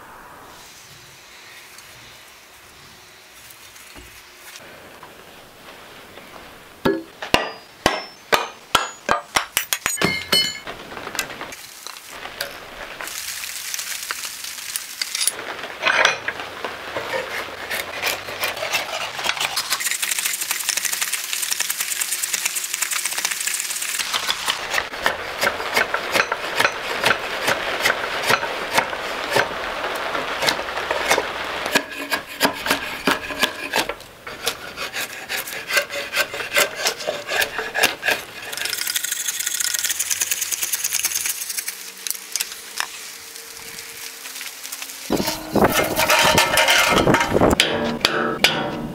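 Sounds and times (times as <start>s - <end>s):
hand tool scraping wood: 16.9s - 20.5s, 24.0s - 39.0s, 45.1s - 48.9s.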